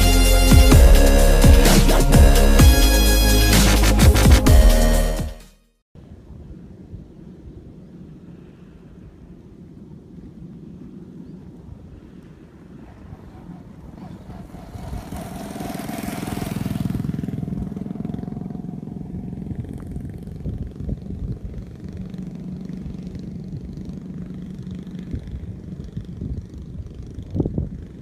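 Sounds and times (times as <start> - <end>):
rush of wind: 6.0 - 28.0
small engine droning: 12.8 - 28.0.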